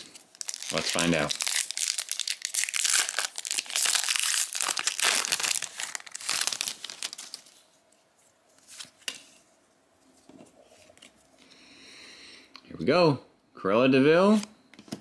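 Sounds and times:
foil wrapper tearing and crinkling: 0.0s - 7.5s.

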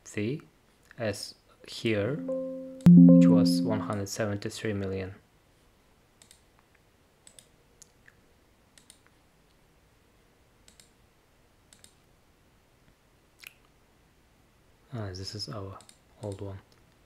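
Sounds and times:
faint computer mouse clicks: 6.2s - 6.4s, 7.2s - 8.2s, 8.8s - 9.2s, 10.6s - 11.0s, 11.7s - 12.0s, 15.8s - 16.9s.

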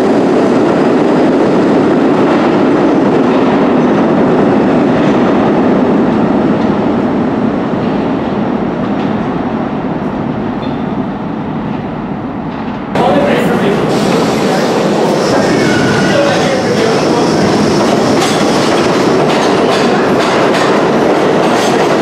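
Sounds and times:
subway train pulling out: 0.0s - 22.0s.

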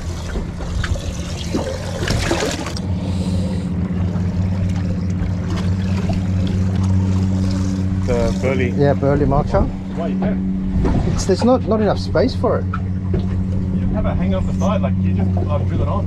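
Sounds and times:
water splashing and trickling: 0.0s - 10.0s
outboard motor humming: 0.0s - 16.0s
water lapping: 0.0s - 16.0s.

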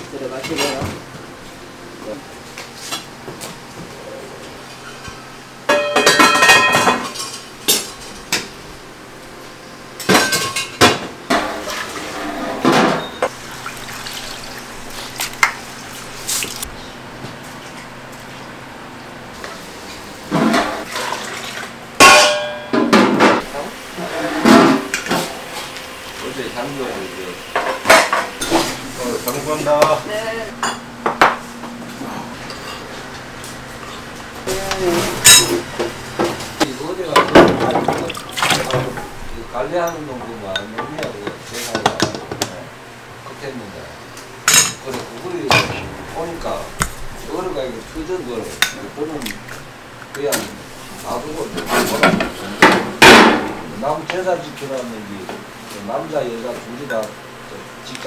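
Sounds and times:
pot lids clanging: 5.7s - 7.9s, 22.0s - 22.9s
utensils clinking in bowls: 5.7s - 8.2s, 33.9s - 35.7s.

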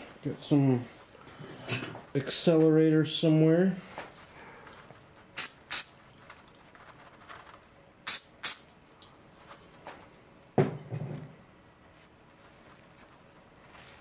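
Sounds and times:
spray pump spritzes: 5.4s - 6.0s, 8.1s - 8.7s.

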